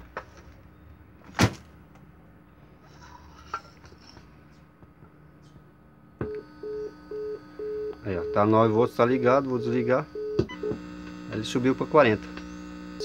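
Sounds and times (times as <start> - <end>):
busy signal beeping: 6.2 - 8.6, 9.2 - 10.8.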